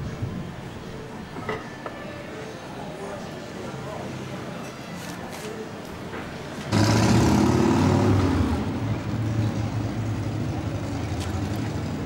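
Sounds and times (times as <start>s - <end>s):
vehicle engine running: 6.7s - 12.0s.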